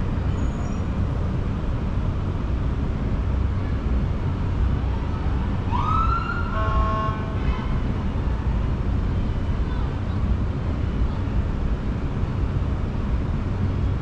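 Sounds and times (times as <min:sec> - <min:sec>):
city traffic rumble: 0:00.0 - 0:14.0
emergency vehicle siren: 0:05.6 - 0:07.2.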